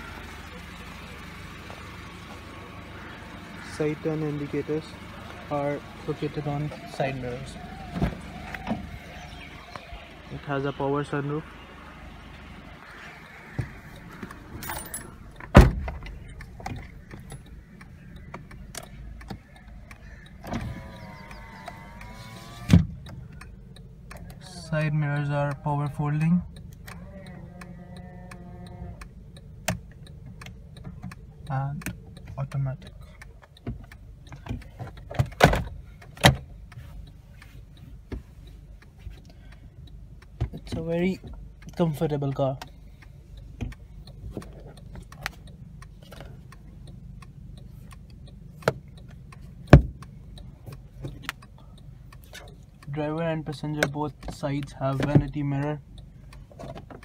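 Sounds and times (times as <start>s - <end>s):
mirror motor whining: 0.0s - 15.4s, 16.1s - 24.1s
low hum inside car cabin: 0.0s - 57.0s.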